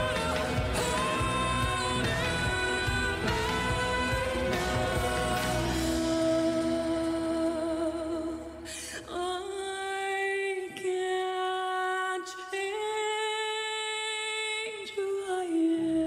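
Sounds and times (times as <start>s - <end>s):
woman singing long held notes: 0.0s - 16.0s.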